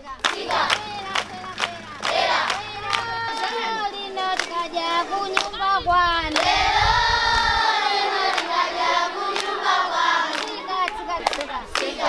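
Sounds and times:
children singing and calling out: 0.0 - 12.0
hands clapping: 0.2 - 5.6, 6.3 - 6.5, 8.2 - 8.6, 9.3 - 12.0.

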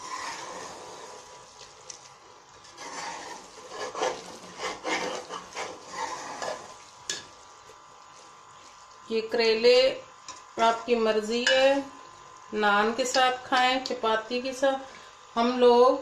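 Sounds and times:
metal ladle scraping a pot: 0.0 - 1.3, 2.6 - 6.8
soft sizzle: 0.0 - 16.0.

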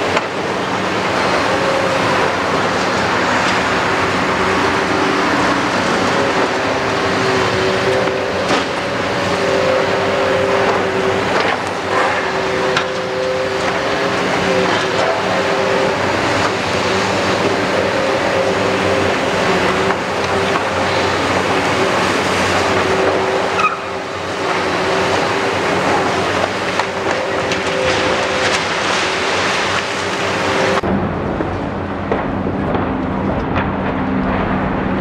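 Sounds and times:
diesel engine drone: 0.0 - 35.0
hydraulic whine: 0.0 - 35.0.

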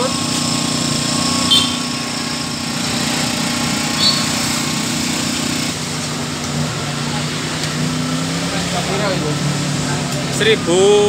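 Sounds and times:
generator running: 0.0 - 7.9
high chirps: 1.4 - 2.1, 3.9 - 4.7.

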